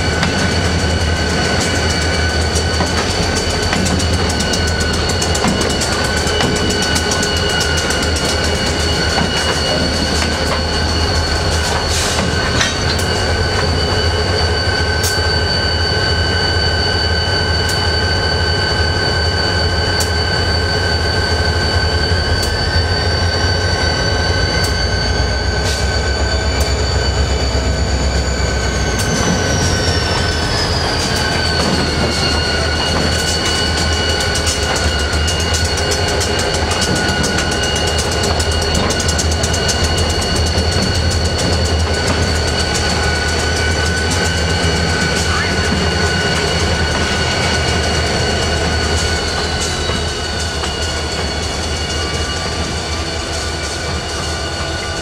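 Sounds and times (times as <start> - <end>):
wheels clicking over rail joints: 0.0 - 13.7
locomotive engine rumble: 0.0 - 15.4
wheels squealing on rail: 0.0 - 55.0.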